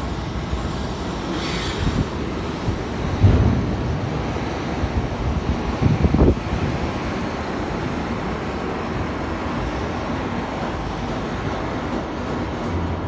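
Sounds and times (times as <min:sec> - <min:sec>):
heavy machinery drone: 0:00.0 - 0:06.8.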